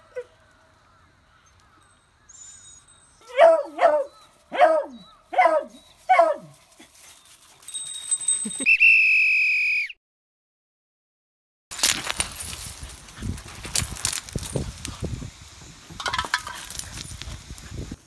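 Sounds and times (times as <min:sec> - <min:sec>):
puppy yelping barks: 0:03.3 - 0:06.5
steady hiss: 0:12.6 - 0:18.0.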